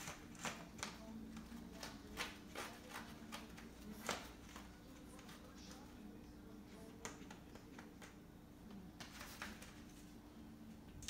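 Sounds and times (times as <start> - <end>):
paws scratching and tapping on floor: 0.0 - 5.9.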